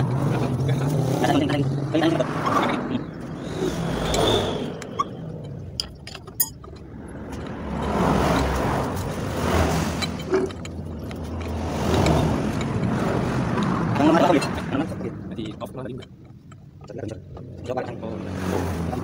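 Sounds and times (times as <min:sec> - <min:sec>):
vehicle low rumble: 0:00.0 - 0:19.0
wrench clinking on metal: 0:04.1 - 0:09.2, 0:09.8 - 0:12.9.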